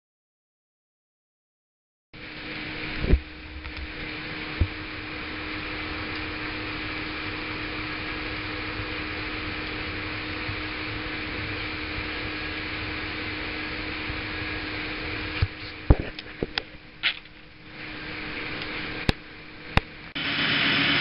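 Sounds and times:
loud steady noise: 0:02.2 - 0:21.0
steady hum with held tone: 0:02.2 - 0:21.0.

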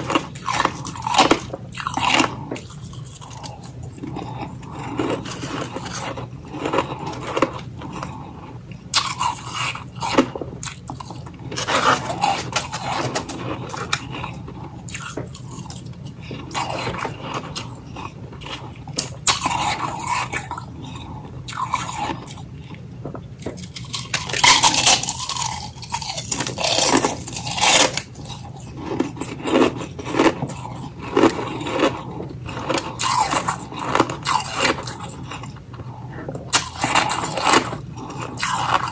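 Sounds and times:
person crunching ice: 0:00.0 - 0:22.4, 0:23.5 - 0:35.6, 0:36.5 - 0:38.9.

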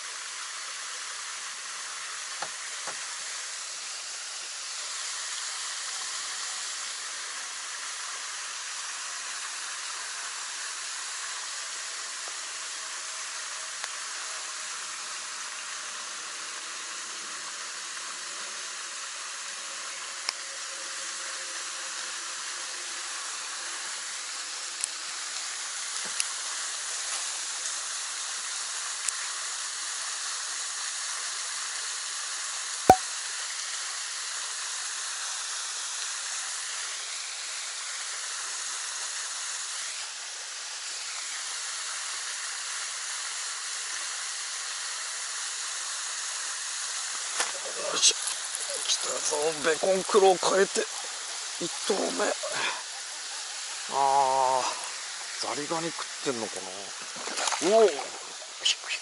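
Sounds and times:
steady outdoor hiss: 0:00.0 - 0:59.0.

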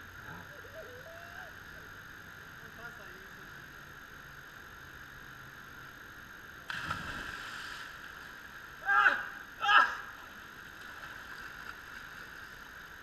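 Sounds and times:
splash of water: 0:06.7 - 0:08.3
person yelling: 0:08.8 - 0:10.1.

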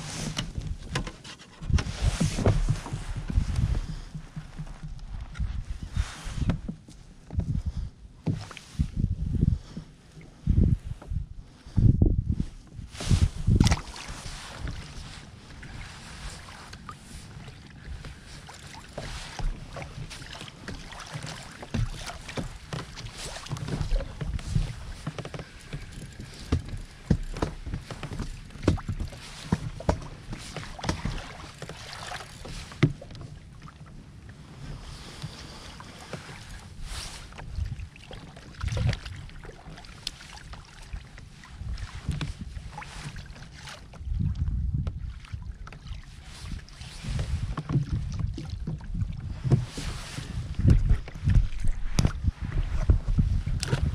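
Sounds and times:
water lapping against plastic hull: 0:00.0 - 0:53.9
wind buffeting microphone: 0:01.6 - 0:06.7, 0:08.7 - 0:16.5, 0:21.7 - 0:31.3, 0:36.6 - 0:38.0, 0:43.9 - 0:45.7, 0:46.3 - 0:53.9.

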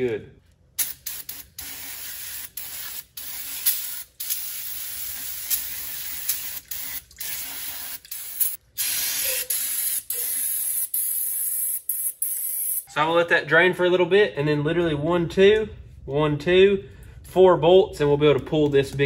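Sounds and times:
aerosol spray hissing: 0:00.8 - 0:12.8.

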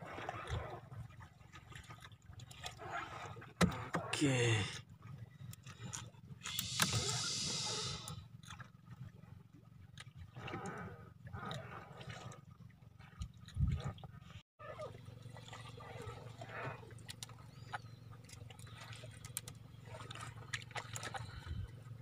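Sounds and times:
steady low hum: 0:04.2 - 0:08.3
water splashing in a tub: 0:14.8 - 0:17.1.

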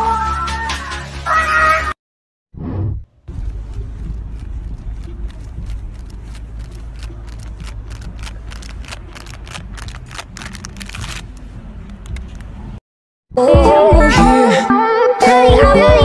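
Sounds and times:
low outdoor rumble: 0:02.8 - 0:12.8.

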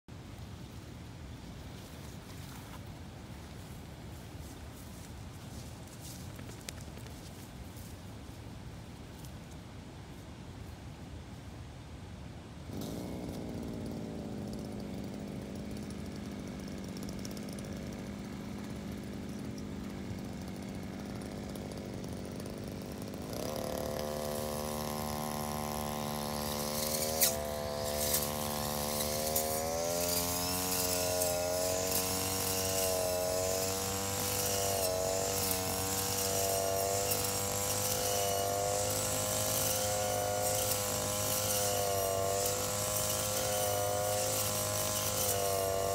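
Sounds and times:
blade cutting grass: 0:12.6 - 0:45.9
brush cutter engine: 0:12.6 - 0:45.9.

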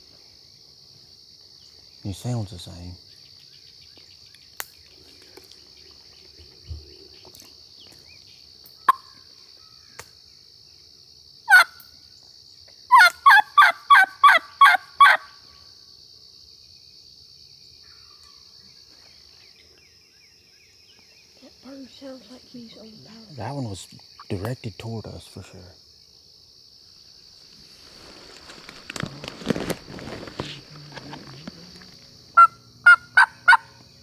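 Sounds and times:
insect trill: 0:00.0 - 0:34.0
turkey yelps: 0:11.5 - 0:11.8, 0:12.9 - 0:15.3, 0:32.4 - 0:33.8.

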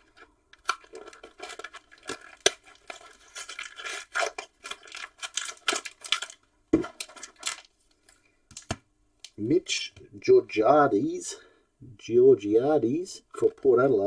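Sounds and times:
wrapper crinkling and tearing: 0:00.0 - 0:08.8.

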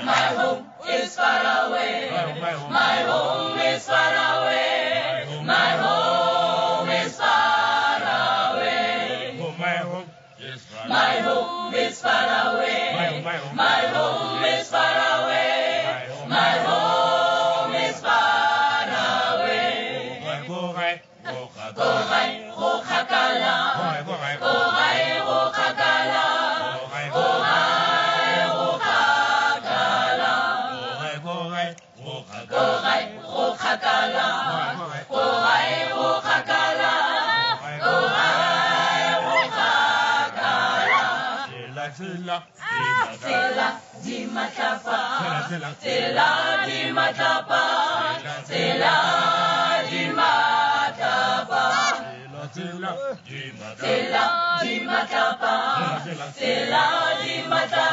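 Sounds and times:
group singing a cappella: 0:00.0 - 0:57.9.

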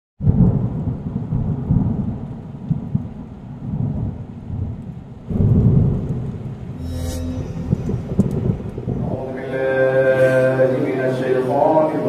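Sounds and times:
rolling thunder: 0:00.2 - 0:06.8.

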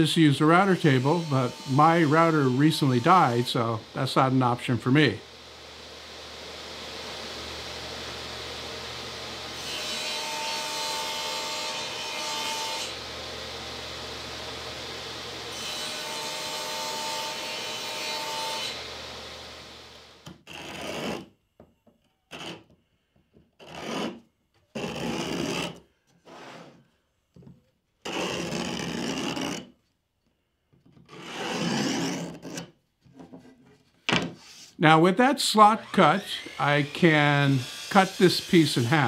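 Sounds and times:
table saw running: 0:00.6 - 0:20.2, 0:35.4 - 0:39.0
chisel scraping wood: 0:20.4 - 0:21.3, 0:22.3 - 0:22.8, 0:23.6 - 0:26.8, 0:28.0 - 0:29.7, 0:31.1 - 0:34.7.

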